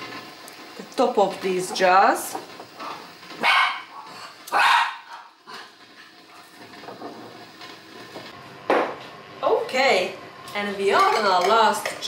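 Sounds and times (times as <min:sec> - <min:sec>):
dog barking: 0:03.4 - 0:05.3.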